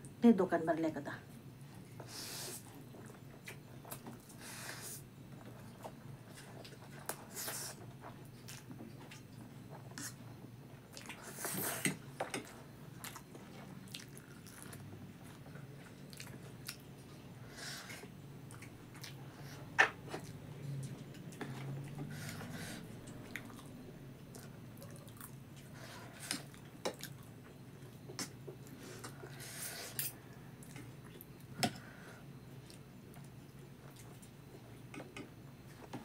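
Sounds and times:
slurping and chewing noodles: 0:12.5 - 0:16.8.

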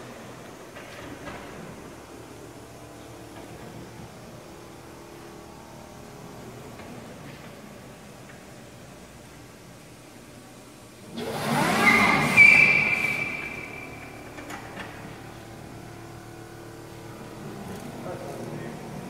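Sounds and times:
tire squeal: 0:11.2 - 0:14.3.

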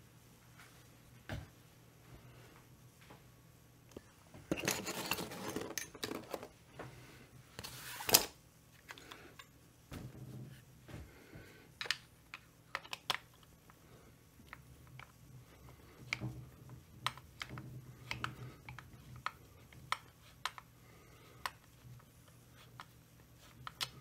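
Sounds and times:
rustling and clattering of tools: 0:04.4 - 0:06.9.

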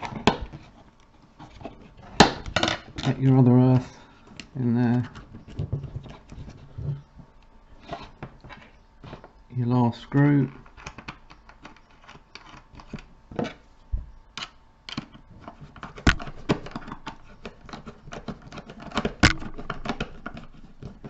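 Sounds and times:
sharp knocks: 0:16.1 - 0:17.2, 0:19.0 - 0:20.5.

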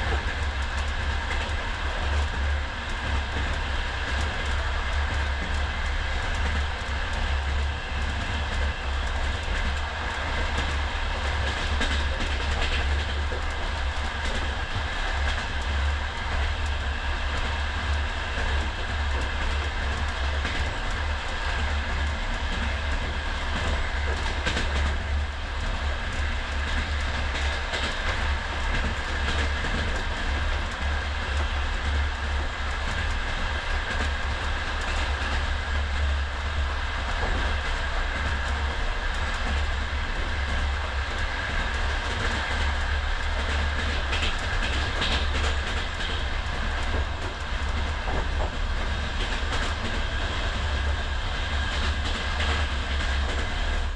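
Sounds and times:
train wheels rumbling on rails: 0:00.0 - 0:53.9.

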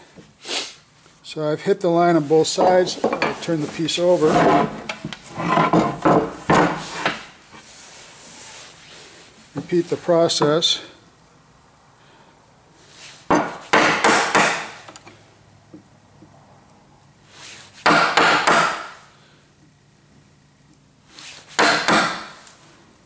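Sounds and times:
mallet striking chisel in wood: 0:13.3 - 0:14.8, 0:17.8 - 0:18.9, 0:21.6 - 0:22.4.

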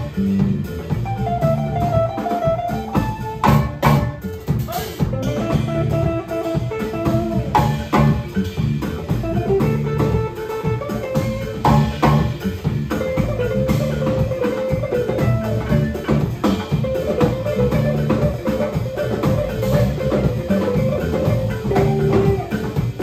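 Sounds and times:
bass guitar: 0:00.0 - 0:23.0
drum kit: 0:00.0 - 0:23.0
electric guitar: 0:00.0 - 0:23.0
hand drum: 0:13.0 - 0:23.0.

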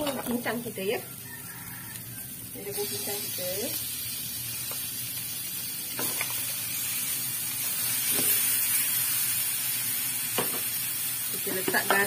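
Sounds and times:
meat sizzling in a frying pan: 0:00.0 - 0:12.0.

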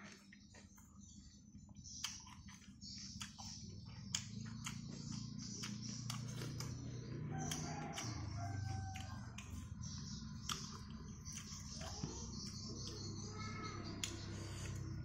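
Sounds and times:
chewing and lip smacks: 0:01.7 - 0:13.1.

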